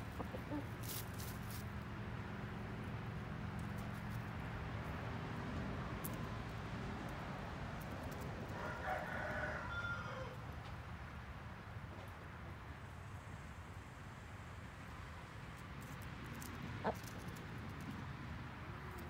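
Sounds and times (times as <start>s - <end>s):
rooster crowing: 8.5s - 10.4s.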